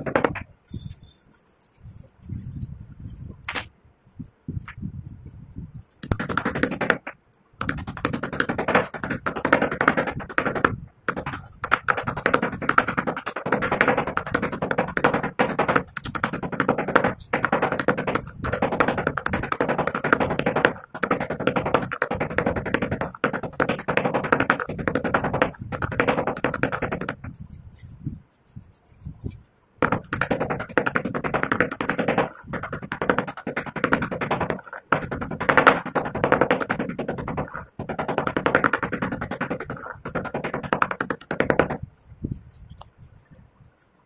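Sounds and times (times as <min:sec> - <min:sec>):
pestle crushing clay in mortar: 0:00.0 - 0:00.5, 0:06.0 - 0:27.4, 0:29.8 - 0:41.8.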